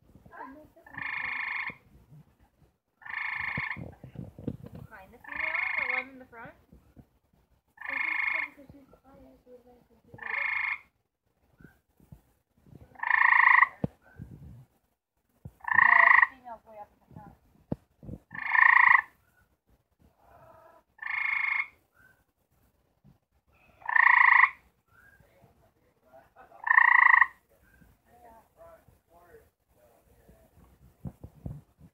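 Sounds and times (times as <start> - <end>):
treefrog trilling call: 0.8 - 1.9, 3.0 - 4.0, 5.2 - 6.3, 7.8 - 8.6, 10.1 - 11.0, 12.9 - 13.9, 15.6 - 16.4, 18.3 - 19.2, 20.4 - 22.2, 23.7 - 25.2, 26.5 - 27.8.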